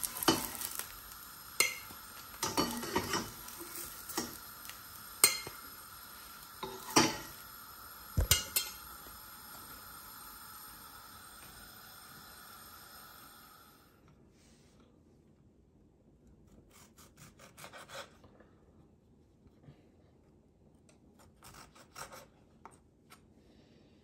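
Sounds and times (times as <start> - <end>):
frying sizzle: 0.0 - 13.8
metal spatula scraping a pan: 1.6 - 4.5, 6.6 - 7.4.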